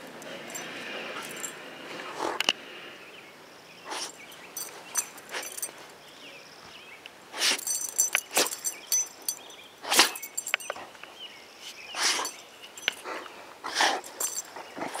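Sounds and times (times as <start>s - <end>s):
dog sniffing: 3.9s - 5.9s, 7.3s - 8.7s, 12.0s - 15.0s.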